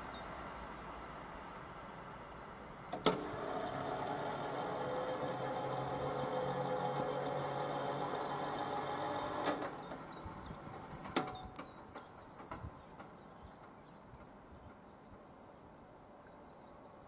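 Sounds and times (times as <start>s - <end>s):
barrier motor humming: 2.9s - 11.4s.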